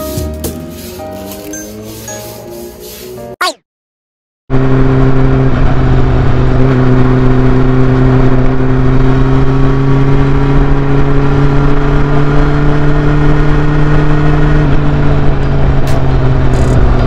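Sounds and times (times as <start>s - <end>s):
motorcycle engine running: 4.5s - 17.0s.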